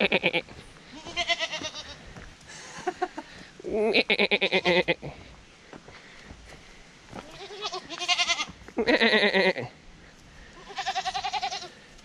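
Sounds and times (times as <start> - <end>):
goats bleating: 0.0 - 2.2, 3.6 - 5.2, 7.2 - 9.8, 10.5 - 11.8.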